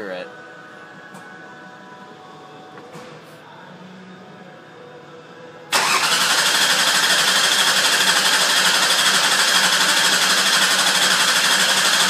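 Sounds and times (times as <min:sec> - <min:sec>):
car engine cranking: 0:05.7 - 0:12.0.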